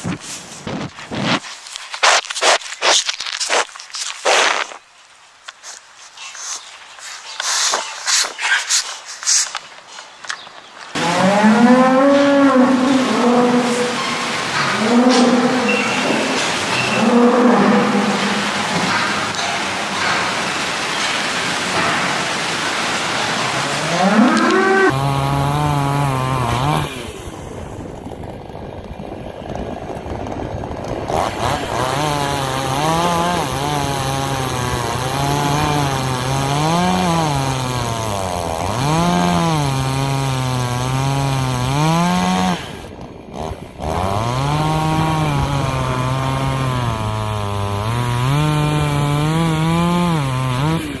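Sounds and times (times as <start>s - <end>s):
chainsaw engine revving: 10.9s - 51.0s.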